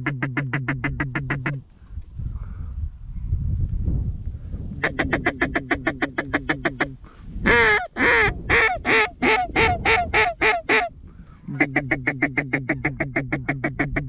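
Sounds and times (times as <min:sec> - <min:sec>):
duck call blown: 0:04.8 - 0:14.0.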